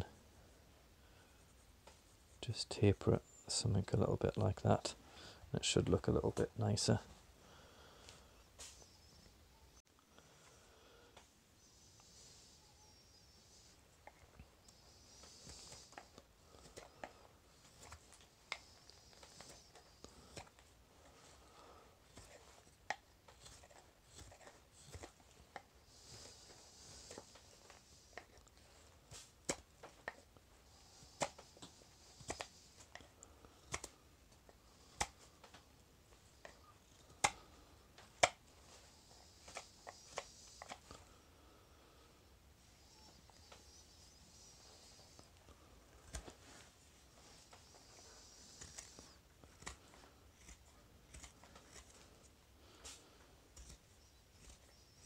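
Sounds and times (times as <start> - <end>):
knife scraping wood: 14.7 - 33.9, 45.9 - 55.0.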